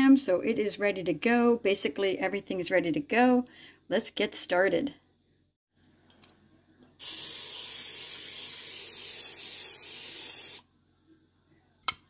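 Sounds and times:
aerosol spray hissing: 7.0 - 10.6.

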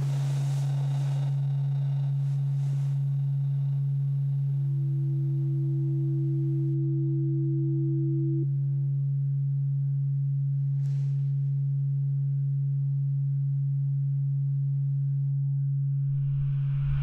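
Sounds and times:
low drone tone: 0.0 - 10.7, 11.5 - 17.0
higher tone: 15.8 - 17.0
faint airy swish: 16.1 - 17.0.

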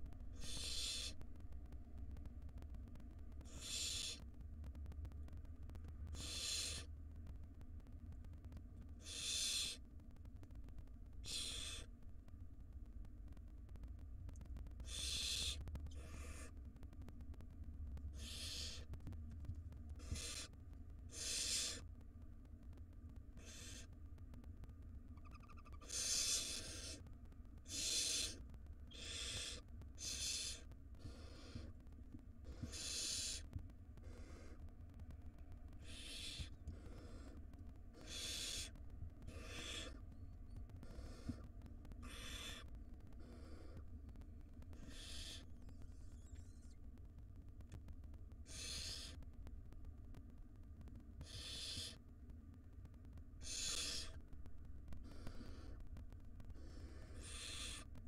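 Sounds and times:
low steady hum: 0.0 - 58.0
owl nestlings hissing calls: 0.4 - 1.2, 3.4 - 4.2, 6.1 - 6.9, 9.0 - 9.8, 11.2 - 11.9, 14.8 - 16.6, 18.1 - 18.9, 20.0 - 21.9, 23.4 - 23.9, 25.2 - 27.0, 27.6 - 31.8, 32.4 - 34.6, 35.8 - 37.4, 38.0 - 40.0, 40.8 - 43.8, 44.7 - 45.5, 48.4 - 49.2, 51.2 - 52.0, 53.4 - 54.2, 55.0 - 55.8, 56.5 - 57.9.

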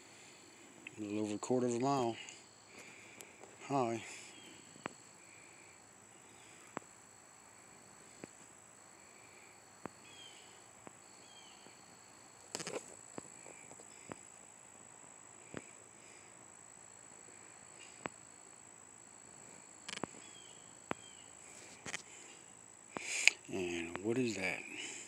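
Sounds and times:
high-pitched whine: 0.0 - 25.0.

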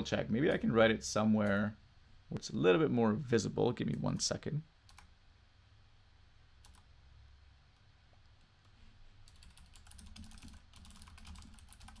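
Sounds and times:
typing on keyboard: 4.9 - 5.1, 6.6 - 6.9, 9.3 - 12.0.

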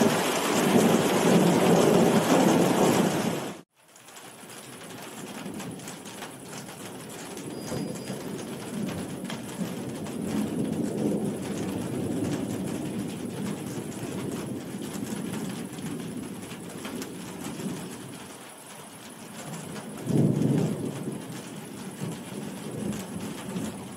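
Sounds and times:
rolling thunder rumbling: 0.0 - 3.6, 4.9 - 23.9
heavy rain hiss: 0.0 - 23.9.

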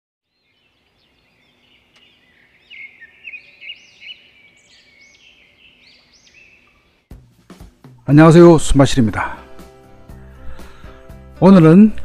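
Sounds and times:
songbirds singing: 0.2 - 7.1.

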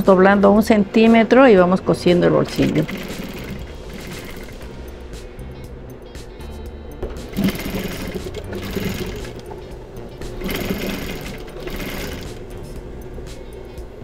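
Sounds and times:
industrial sewing machine stitching: 2.6 - 4.6, 7.3 - 9.5, 10.4 - 12.4.

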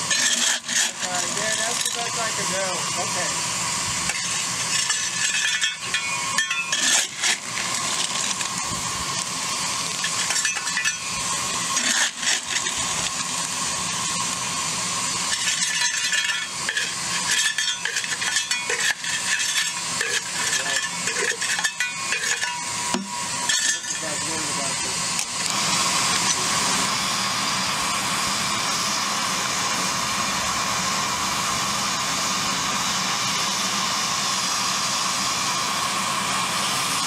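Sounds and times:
steam locomotive hissing: 0.0 - 37.0.

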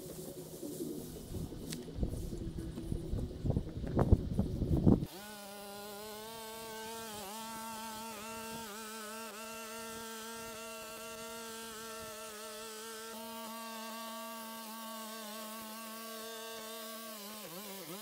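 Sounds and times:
trimmer motor buzzing: 1.6 - 18.0.

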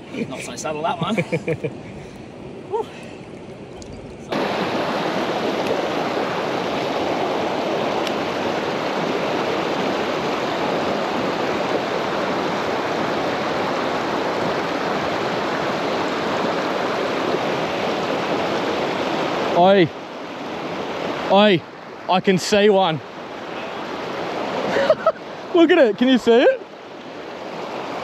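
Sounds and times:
river rapids rushing over rocks: 4.3 - 21.3.

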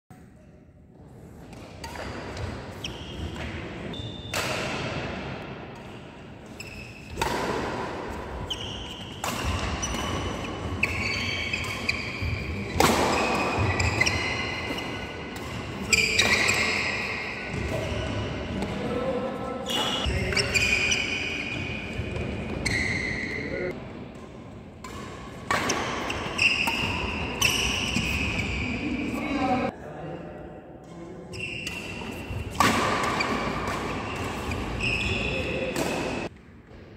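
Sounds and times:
shoes squeaking on court: 1.8 - 4.4, 6.4 - 7.6, 8.3 - 18.8, 19.6 - 23.7, 25.5 - 29.6, 31.3 - 36.3
racket striking shuttlecock: 4.3 - 5.9, 7.1 - 17.9, 24.1 - 28.4, 31.7 - 34.8, 35.7 - 36.3.

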